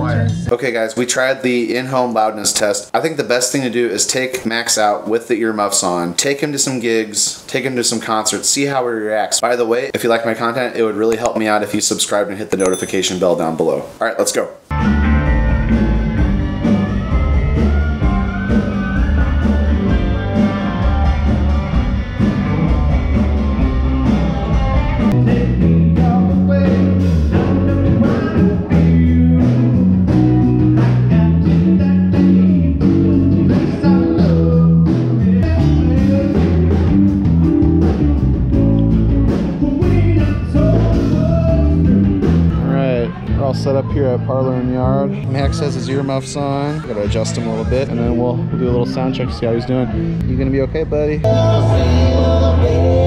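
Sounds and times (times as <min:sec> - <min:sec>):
guitar: 0:00.0 - 0:00.6, 0:14.7 - 0:53.0
rock band music: 0:14.7 - 0:46.1, 0:46.8 - 0:53.0
person singing: 0:25.0 - 0:29.8, 0:30.8 - 0:37.0, 0:39.4 - 0:43.4, 0:51.2 - 0:53.0.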